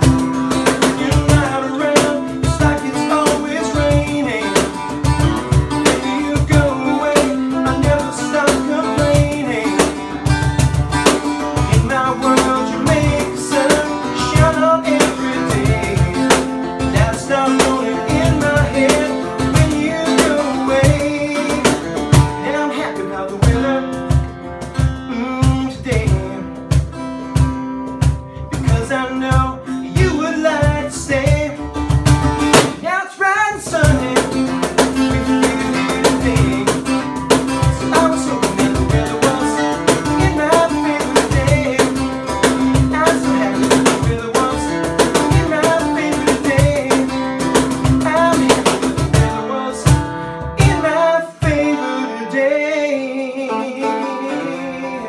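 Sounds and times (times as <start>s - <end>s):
low percussive beat: 0.0s - 22.4s
man singing: 0.0s - 27.0s, 28.0s - 55.0s
strummed acoustic guitar: 0.0s - 55.0s.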